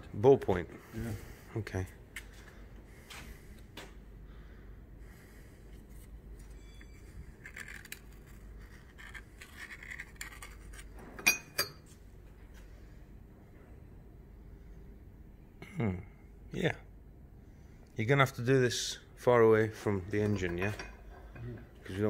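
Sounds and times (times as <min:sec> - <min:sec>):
handling clicks and scrapes: 0:06.0 - 0:11.7.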